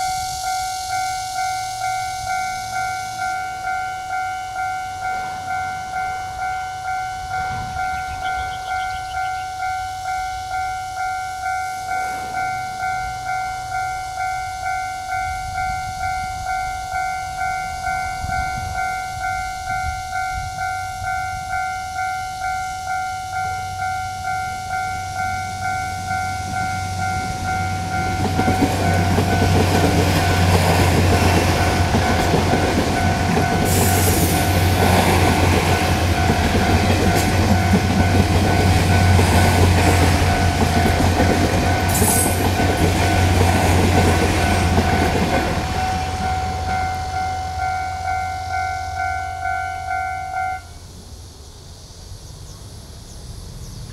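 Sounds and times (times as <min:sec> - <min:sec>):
diesel train engine drone: 0:00.0 - 0:53.9
train wheel noise: 0:00.0 - 0:53.9
level crossing bell dinging: 0:44.0 - 0:50.7.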